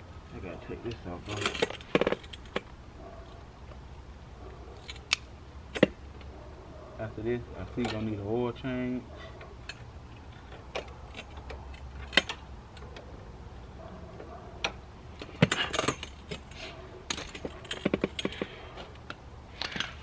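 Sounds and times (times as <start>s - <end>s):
tools and metal parts clinking: 0.3s - 3.4s, 4.7s - 6.3s, 7.6s - 8.3s, 9.2s - 13.1s, 14.2s - 20.0s.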